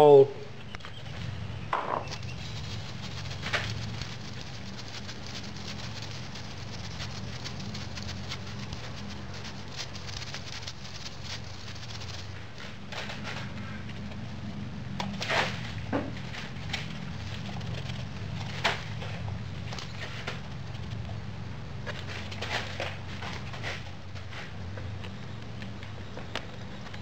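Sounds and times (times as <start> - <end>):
low steady hum: 0.0 - 27.0
sand grains pattering through a sieve: 2.1 - 14.0.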